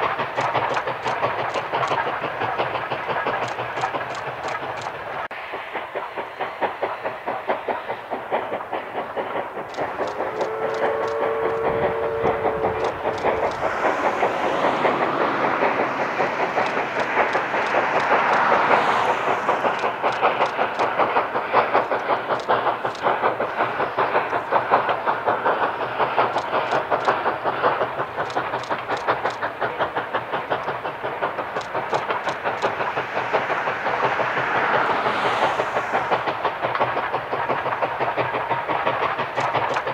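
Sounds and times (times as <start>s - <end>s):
steam hiss: 0.0s - 39.9s
steam locomotive exhaust chuffs: 0.0s - 39.9s
train coaches clattering: 0.0s - 39.9s
two-note steam whistle: 10.0s - 13.9s.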